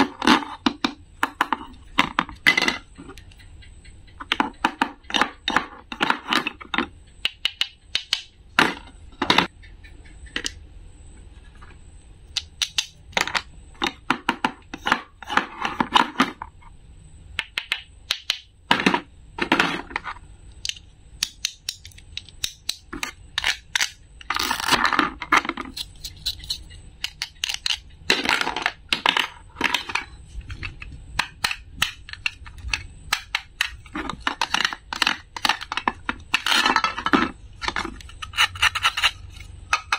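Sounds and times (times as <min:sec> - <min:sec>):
clicks and taps: 0:00.6 - 0:09.5.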